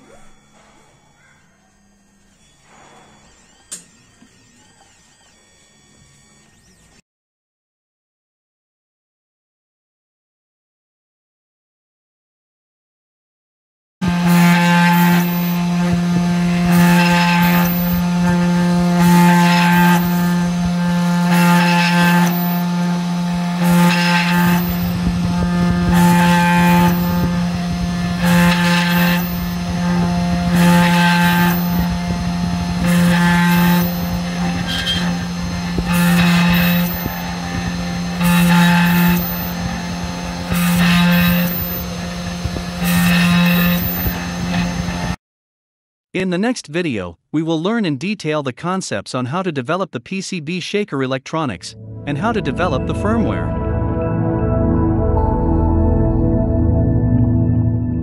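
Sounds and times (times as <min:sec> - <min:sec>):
spindle motor humming: 0:00.0 - 0:07.0, 0:14.0 - 0:45.2
drill bit drilling: 0:14.0 - 0:45.2.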